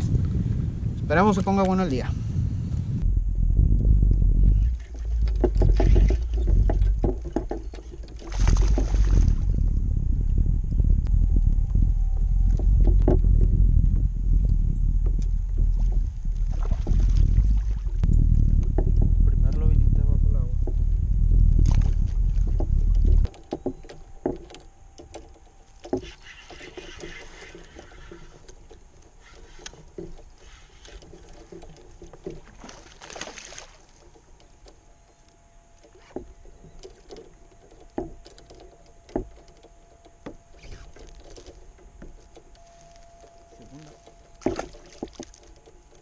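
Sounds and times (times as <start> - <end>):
loud low rumble: 2.1 - 5.8, 8.4 - 23.3
faint water sounds: 4.4 - 10.4, 15.1 - 20.9, 21.6 - 46.0.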